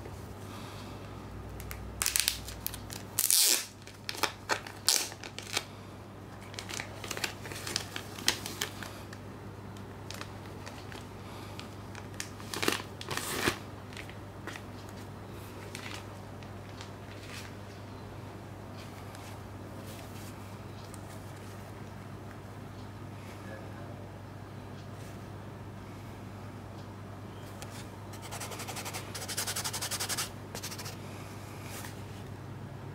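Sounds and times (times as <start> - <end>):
steady low hum: 0.0 - 3.2, 13.6 - 32.9
plastic wrapping crinkling: 1.6 - 5.7, 6.4 - 8.9, 9.8 - 14.6, 15.6 - 17.6.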